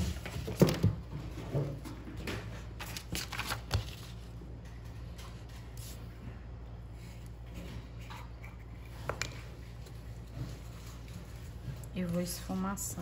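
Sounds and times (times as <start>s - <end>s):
paper rustling and crinkling: 0.0s - 1.1s, 2.4s - 6.1s.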